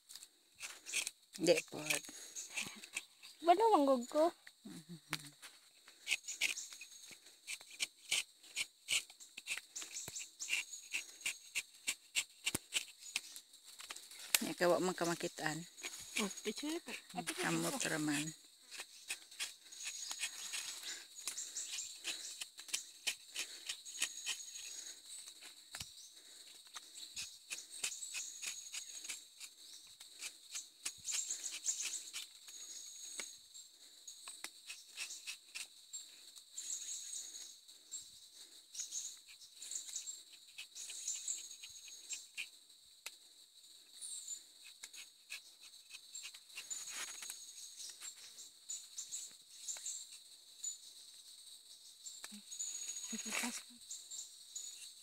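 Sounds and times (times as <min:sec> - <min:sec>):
knife scraping tree bark: 0:00.6 - 0:03.4, 0:05.9 - 0:15.0, 0:15.7 - 0:25.4, 0:26.7 - 0:33.4, 0:34.2 - 0:35.7, 0:38.8 - 0:42.5, 0:44.6 - 0:48.0
high insect trilling: 0:00.6 - 0:37.6, 0:38.3 - 0:51.3, 0:52.0 - 0:55.0.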